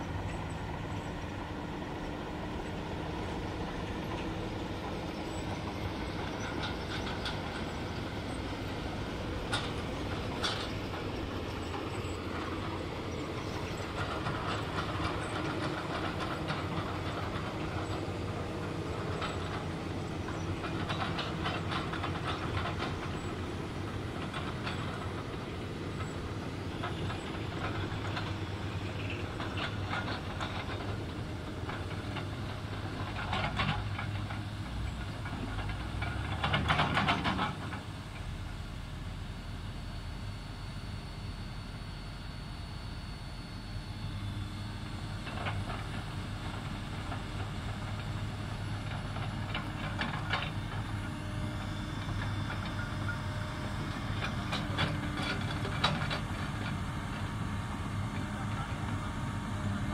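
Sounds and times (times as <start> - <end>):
track links clanking: 0.0 - 38.3
excavator engine drone: 0.0 - 59.9.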